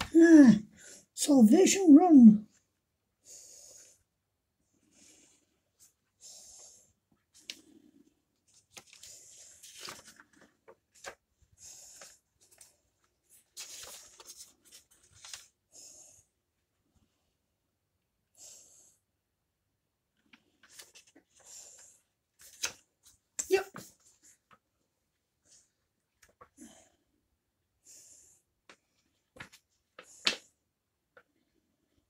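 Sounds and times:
pages being turned: 8.5 - 11.2, 11.8 - 15.5, 20.3 - 21.5, 22.4 - 24.6.

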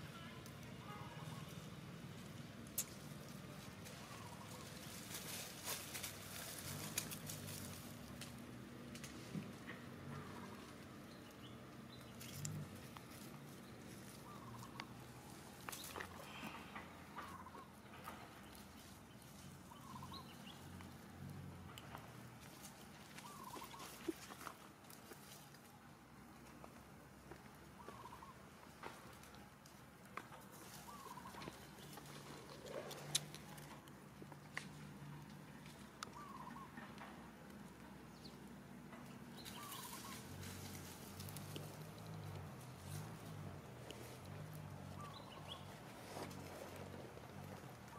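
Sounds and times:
rustling of dry leaves: 0.0 - 47.9
monkeys chirping: 14.0 - 14.8, 19.7 - 20.4, 23.2 - 24.4, 30.8 - 33.3, 36.1 - 36.9, 39.5 - 40.3.

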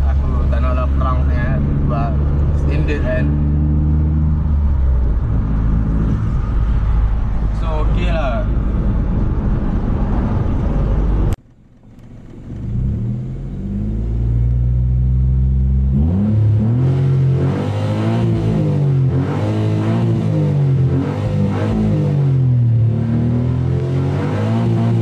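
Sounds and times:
car engine idling: 0.0 - 16.6
car road noise inside moving car: 0.0 - 17.4
car engine revving: 0.0 - 25.0.

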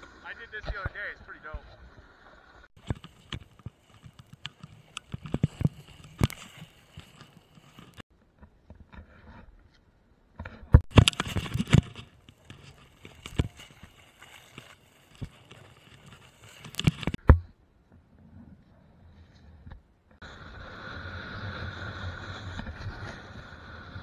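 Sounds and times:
snowboard scraping over snow: 0.0 - 8.0, 11.1 - 16.9, 20.2 - 24.0.

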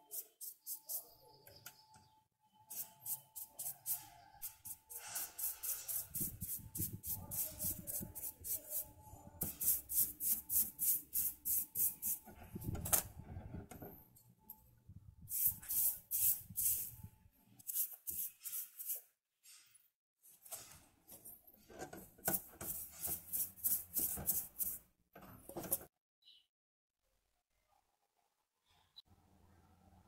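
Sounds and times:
bristle brush scratchy strokes: 2.7 - 12.2, 17.6 - 19.1, 22.6 - 24.8.

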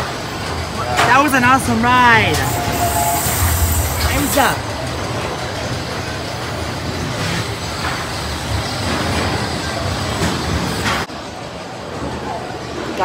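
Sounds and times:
roller coaster car rumbling: 0.0 - 12.9.

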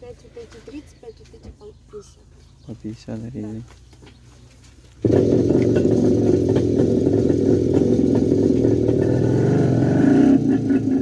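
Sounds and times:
vehicle engine running loudly: 5.0 - 11.0.

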